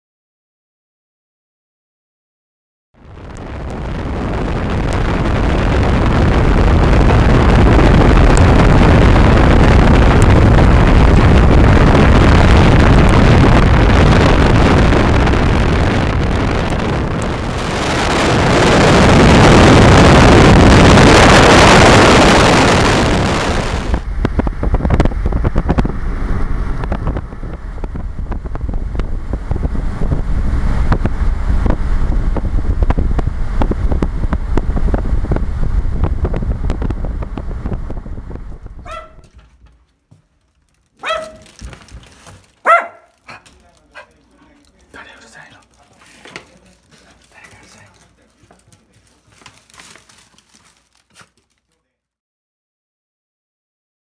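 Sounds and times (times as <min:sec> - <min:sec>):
wind rushing over microphone: 0:03.0 - 0:39.5
tyre and road noise: 0:03.0 - 0:51.7.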